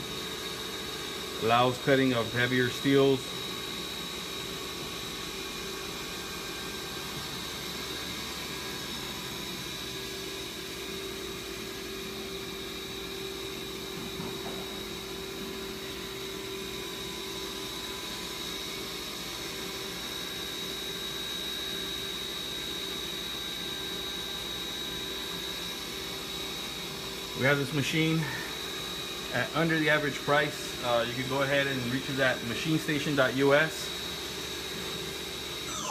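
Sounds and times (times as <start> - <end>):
high whine: 35.6 - 35.9.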